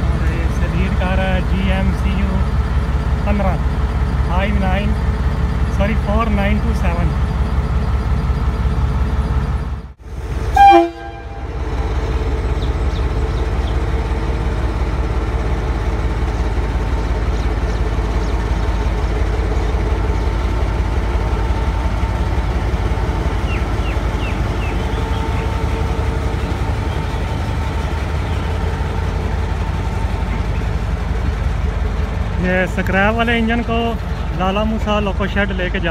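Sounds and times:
locomotive engine rumbling: 0.0s - 35.9s
locomotive horn toot: 10.4s - 12.0s.

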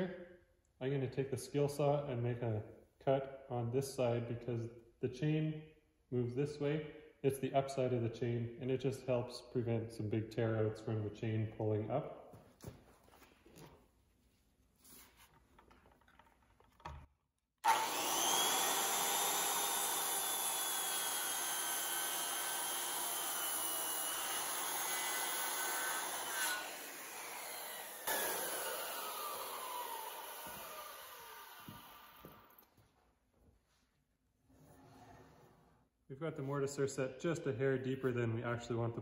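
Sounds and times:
circular saw cutting wood: 17.6s - 32.6s.

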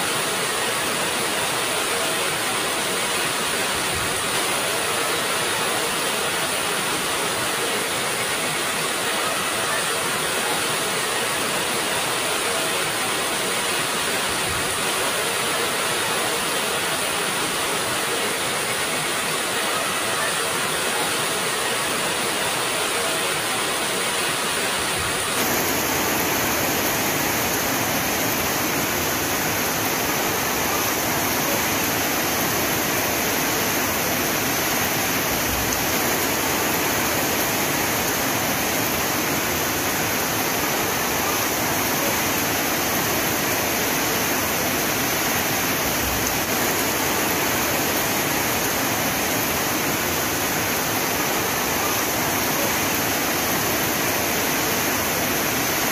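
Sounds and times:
heavy rain hissing: 0.0s - 55.9s.

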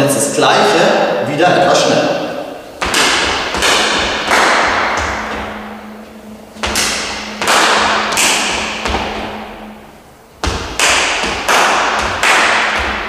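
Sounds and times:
hand claps in reverberant room: 2.8s - 13.0s.

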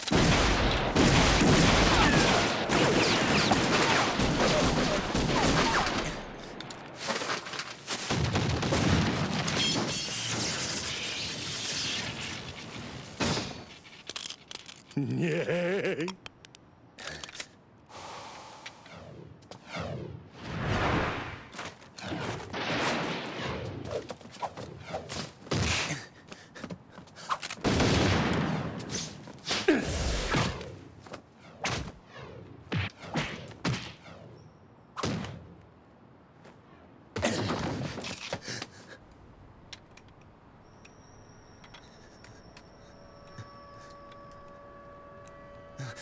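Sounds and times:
faint high steady tone: 40.6s - 46.0s.

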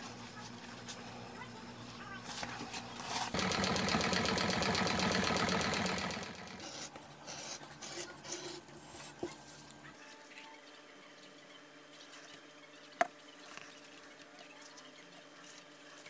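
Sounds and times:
sewing machine running: 3.3s - 6.9s.

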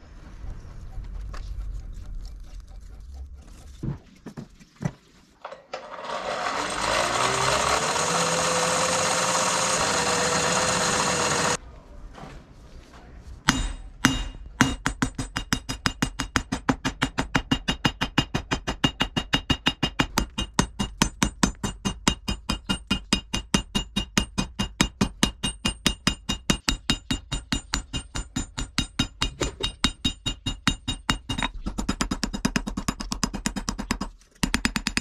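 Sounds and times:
metallic anvil ring: 13.5s - 16.1s
hammer striking hot steel: 13.5s - 35.0s.

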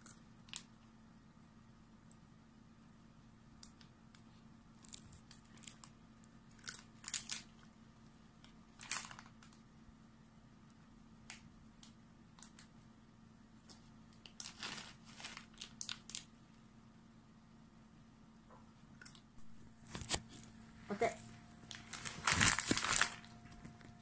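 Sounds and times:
plastic pouch crinkling: 6.6s - 7.6s, 8.7s - 9.6s, 14.2s - 16.3s, 21.5s - 24.0s.

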